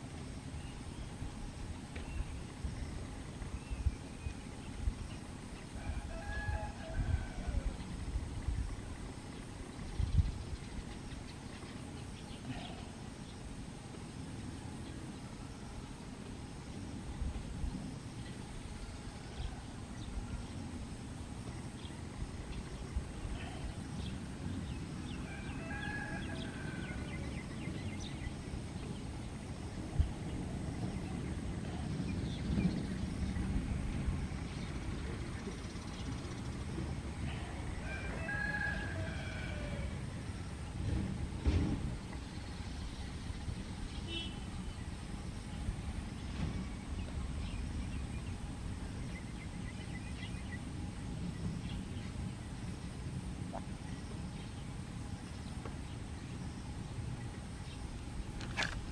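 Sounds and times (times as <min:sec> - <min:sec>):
steady low rumble: 0:00.0 - 0:38.2, 0:38.8 - 0:58.9
small birds chirping: 0:08.6 - 0:13.6
thump: 0:40.9 - 0:41.9.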